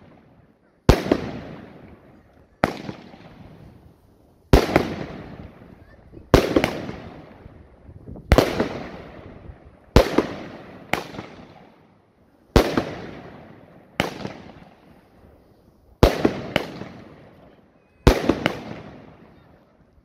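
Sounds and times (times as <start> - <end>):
firework shots banging: 0.0 - 3.8, 4.5 - 5.7, 6.3 - 7.5, 8.3 - 11.8, 12.5 - 14.9, 16.0 - 17.4, 18.0 - 19.4.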